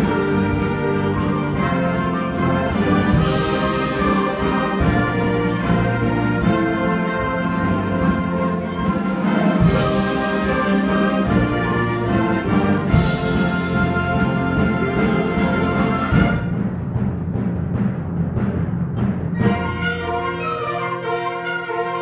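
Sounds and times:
concert band playing chords: 0:00.0 - 0:16.6.

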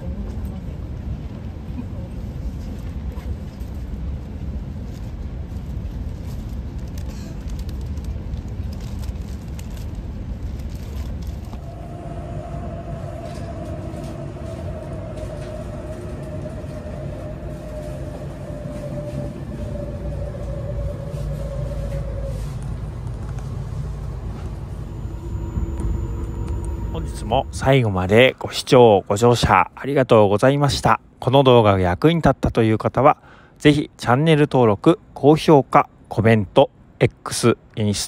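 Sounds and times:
train running rumble: 0:00.0 - 0:30.9
mid-pitched whine: 0:11.1 - 0:30.2.

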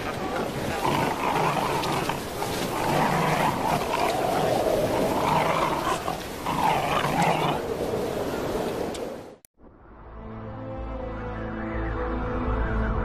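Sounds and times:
rough animal calls: 0:00.0 - 0:07.7.

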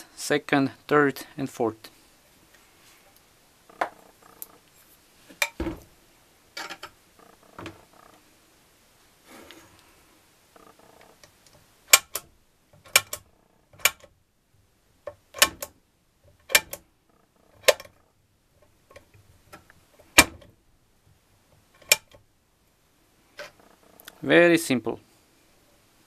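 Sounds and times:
gearbox selector drum clicking: 0:12.8 - 0:14.1, 0:16.4 - 0:16.8, 0:17.6 - 0:18.0, 0:21.8 - 0:22.2.

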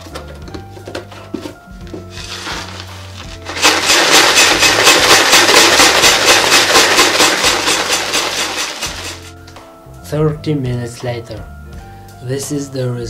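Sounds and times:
sand rattling in shaken box: 0:02.2 - 0:09.3.

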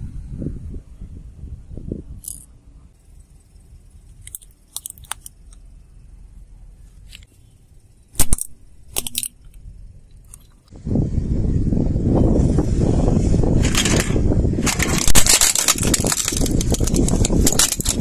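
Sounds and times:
steady low rumble: 0:00.0 - 0:18.0
plastic cracking under car tyre: 0:13.6 - 0:18.0.

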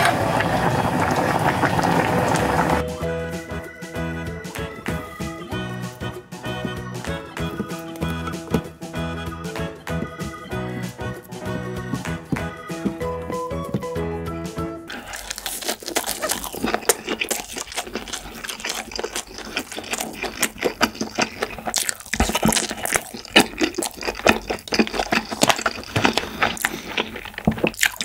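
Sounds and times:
guitar tune: 0:02.8 - 0:14.9
wet crunchy chewing: 0:04.4 - 0:08.7, 0:14.9 - 0:28.0.

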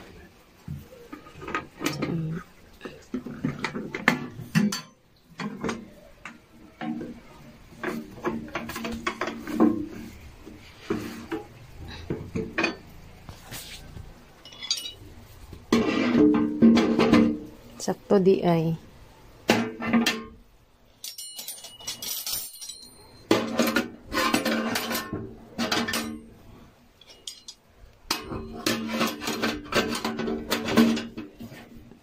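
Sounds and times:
metallic knocks and rattles: 0:03.1 - 0:10.2, 0:14.4 - 0:15.1, 0:19.5 - 0:20.4, 0:21.0 - 0:26.4, 0:27.0 - 0:31.5
metal latch and lid clanking: 0:03.4 - 0:07.1, 0:14.5 - 0:15.0.

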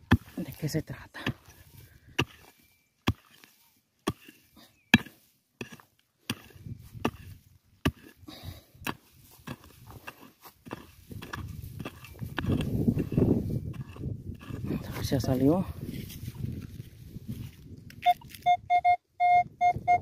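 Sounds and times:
digging tool chopping into soil: 0:00.0 - 0:08.2, 0:08.8 - 0:15.3.

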